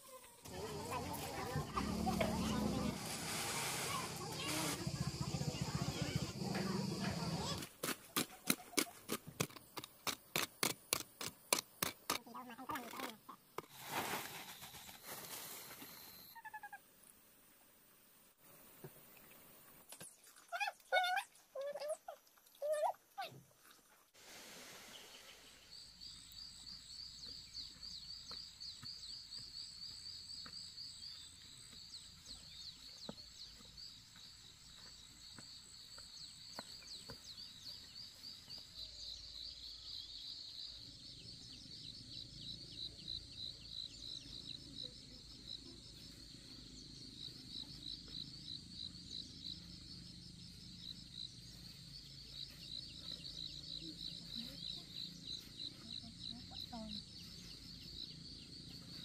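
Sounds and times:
insects chirring: 0:00.4 - 0:07.6, 0:24.9 - 0:59.0.

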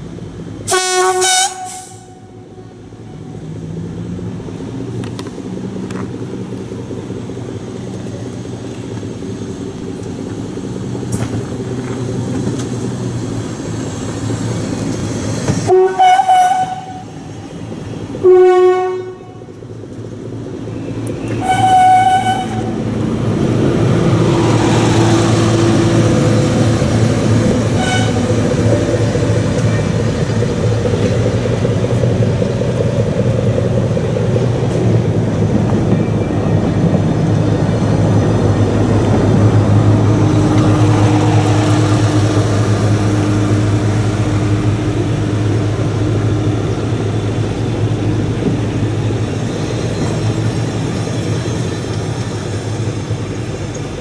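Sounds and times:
diesel railcar passing: 0:00.0 - 0:54.0
train horn blasts: 0:00.7 - 0:02.6, 0:15.7 - 0:17.2, 0:18.2 - 0:19.5, 0:21.4 - 0:22.8, 0:27.8 - 0:28.3.

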